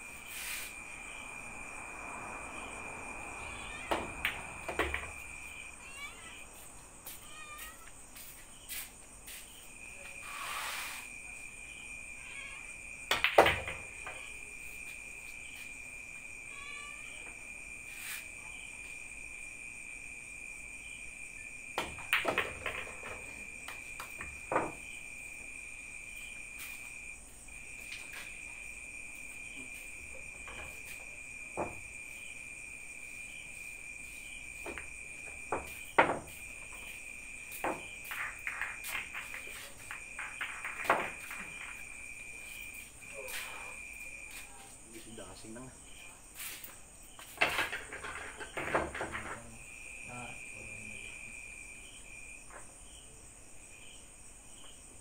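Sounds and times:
crickets chirring: 0:00.0 - 0:55.0
pool balls clicking: 0:21.8 - 0:24.8, 0:37.5 - 0:42.0.

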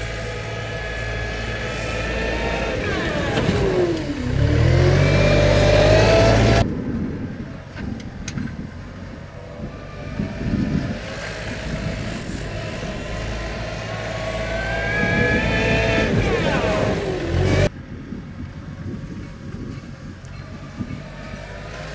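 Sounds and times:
diesel engine revving: 0:00.0 - 0:06.7, 0:09.4 - 0:17.7, 0:20.4 - 0:21.9.

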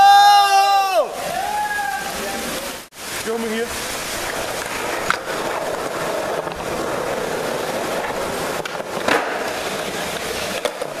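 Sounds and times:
skateboard wheels rolling on concrete: 0:00.0 - 0:11.0
skateboard clacking: 0:04.2 - 0:11.0.

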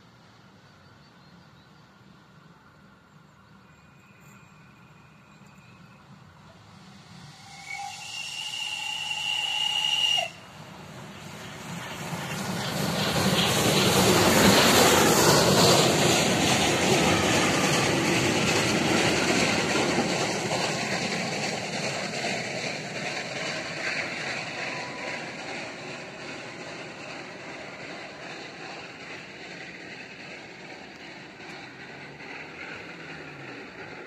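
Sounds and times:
train wheels rumbling and rattling: 0:01.9 - 0:34.0
steam locomotive whistle: 0:07.2 - 0:10.5, 0:24.5 - 0:25.5.

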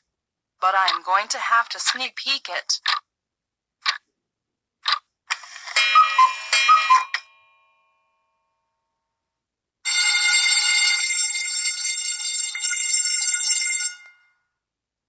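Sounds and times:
clock ticking: 0:00.6 - 0:03.0, 0:04.8 - 0:05.1
bell ringing: 0:05.4 - 0:08.2.

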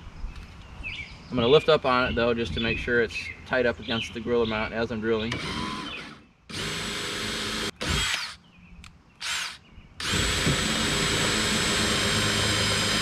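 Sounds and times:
cordless drill boring: 0:05.3 - 0:08.4, 0:09.2 - 0:13.0.

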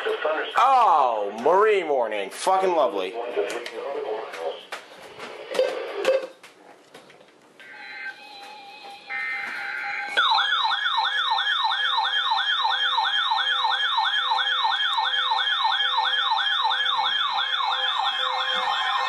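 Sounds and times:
electronic warbling siren: 0:07.6 - 0:19.0.

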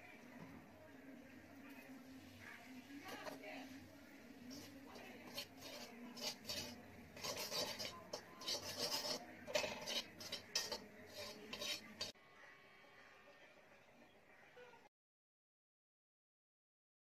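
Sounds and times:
metal ladle scraping a pan: 0:02.2 - 0:12.2.

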